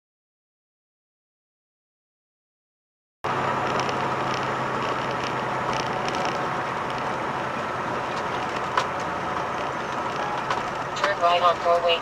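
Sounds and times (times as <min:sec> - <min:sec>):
engine and road noise in cab: 0:03.2 - 0:12.0
low hum: 0:03.3 - 0:12.0.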